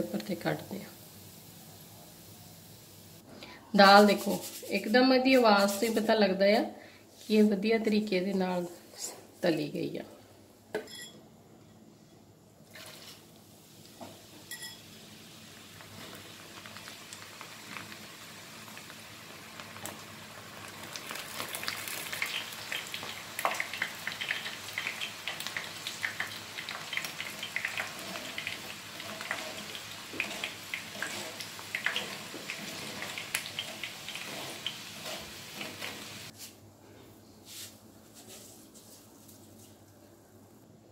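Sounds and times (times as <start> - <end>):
lentils sizzling in hot oil: 0.0 - 3.2, 13.5 - 36.4.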